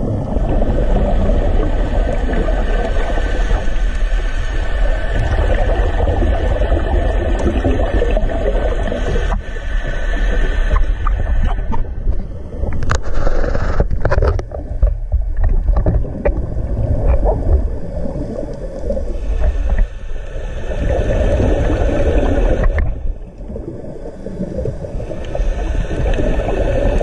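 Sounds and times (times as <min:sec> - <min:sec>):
rush of exhaled bubbles: 0:00.0 - 0:27.0
steady low rumble: 0:00.0 - 0:27.0
diver breathing through regulator: 0:08.8 - 0:14.0, 0:16.4 - 0:27.0.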